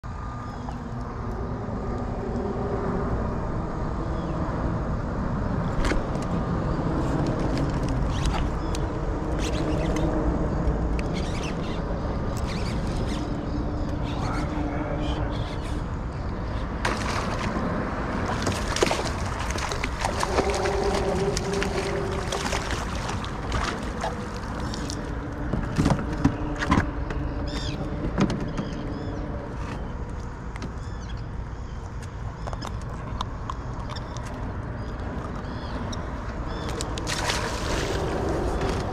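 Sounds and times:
wind buffeting microphone: 1.1s - 30.2s
clicks and knocks from kayak: 7.1s - 10.1s, 18.3s - 28.8s
fish splashing at water surface: 16.8s - 25.1s, 37.0s - 38.8s.

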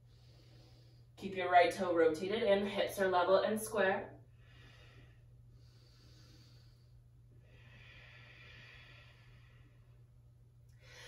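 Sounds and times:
soft slow breath: 0.0s - 1.2s, 4.3s - 11.0s
low steady hum: 0.0s - 11.0s.

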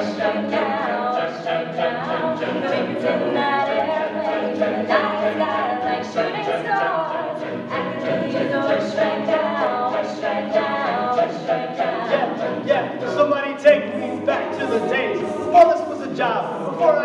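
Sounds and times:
sung backing harmonies: 0.0s - 17.0s
man singing lead: 12.2s - 17.0s.

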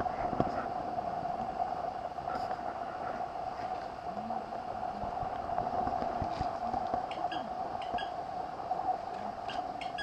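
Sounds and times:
steady hum: 0.0s - 10.0s.

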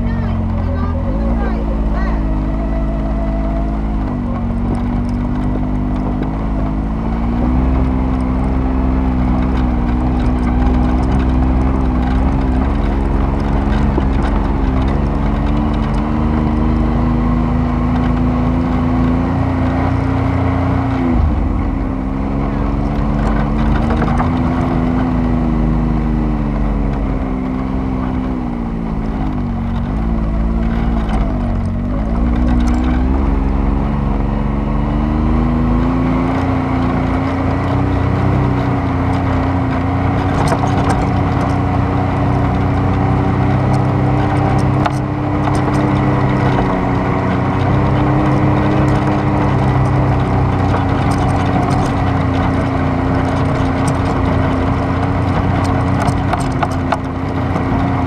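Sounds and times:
vehicle engine under load: 0.0s - 58.0s
wind: 0.0s - 58.0s.

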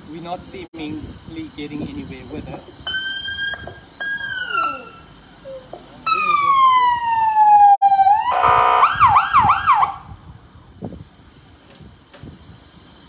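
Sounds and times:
harsh buzzing siren blast: 2.8s - 5.2s, 6.0s - 10.2s
emergency vehicle siren: 2.9s - 10.2s.

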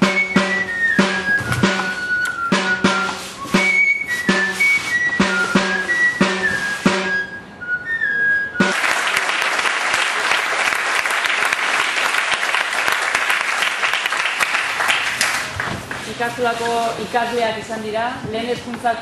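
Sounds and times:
drum beats: 0.0s - 7.3s, 8.6s - 9.6s
flute melody: 0.0s - 9.3s
audience applauding: 8.7s - 16.1s.

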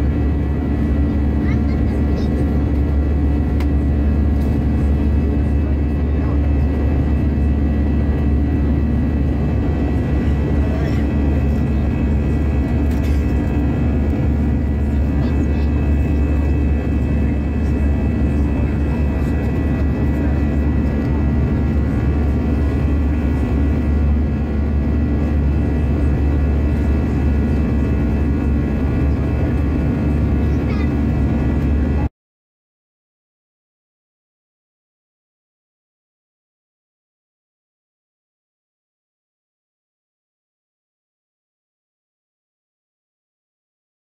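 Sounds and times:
jet airliner cabin rumble: 0.0s - 32.1s.

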